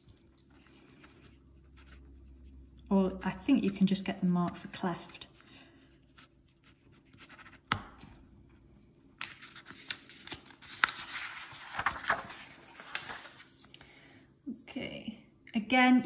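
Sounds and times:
paper sheets rustling: 9.2 - 14.0.

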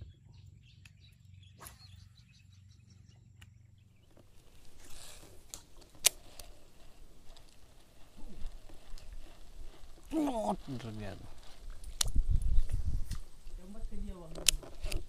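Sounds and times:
small chirps: 0.0 - 13.2
fishing reel clicking and rattling: 4.3 - 12.4.

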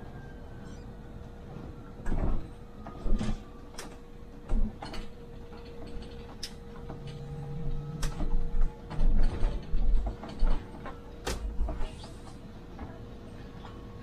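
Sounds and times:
bus interior hum with thin tone: 0.0 - 14.0.

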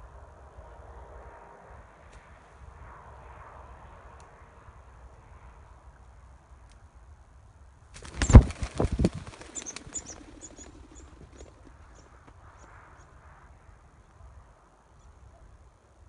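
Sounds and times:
bird wings flapping: 7.9 - 11.9.

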